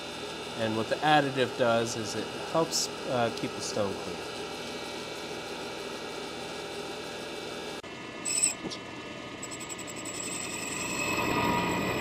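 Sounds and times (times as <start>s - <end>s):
grinding machine humming: 0.0s - 8.8s, 9.4s - 12.0s
high-pitched ring: 8.2s - 8.6s, 9.4s - 12.0s.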